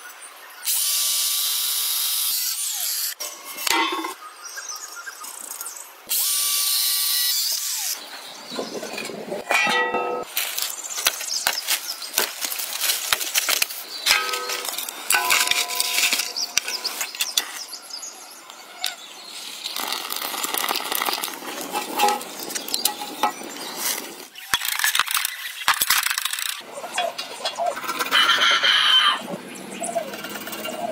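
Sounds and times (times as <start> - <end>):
dry branches snapping: 9.5 - 17.5
metallic clinks: 14.1 - 17.0.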